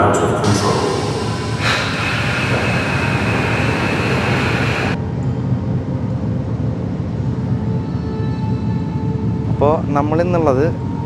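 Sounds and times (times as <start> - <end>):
loud rushing roar: 0.0 - 5.0
low rumbling hum: 0.0 - 11.0.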